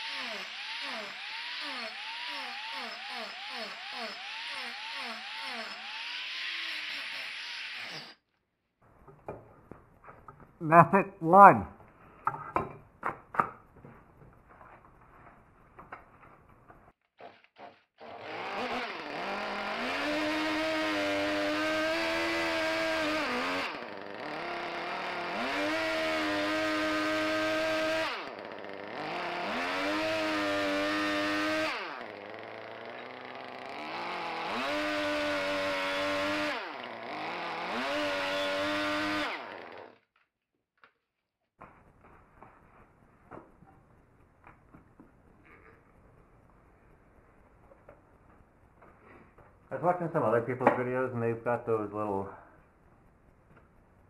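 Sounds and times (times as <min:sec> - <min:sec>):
electric chainsaw cutting wood: 0:00.0 - 0:08.2, 0:17.2 - 0:40.1.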